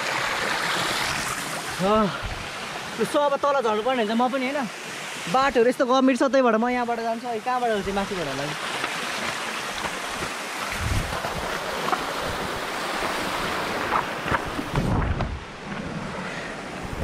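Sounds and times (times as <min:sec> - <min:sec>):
waterfall stream rushing: 0:00.0 - 0:15.6
wind buffeting microphone: 0:10.0 - 0:16.2.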